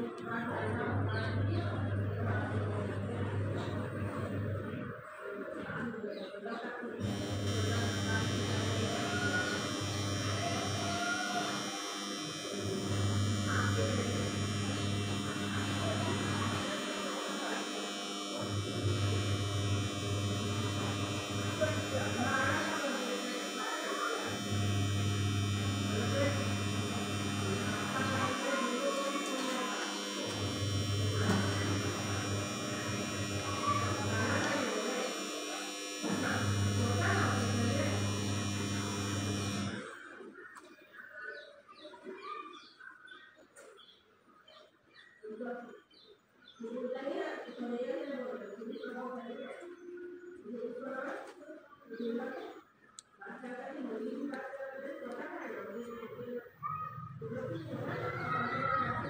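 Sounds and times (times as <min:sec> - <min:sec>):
faint voices: 0:00.0 - 0:45.9, 0:46.6 - 0:59.0
low steady hum: 0:07.0 - 0:39.9.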